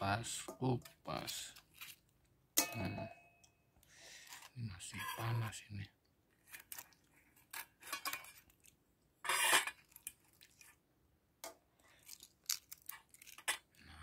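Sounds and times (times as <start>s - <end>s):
eggshell crackling while peeled: 11.9s - 13.8s.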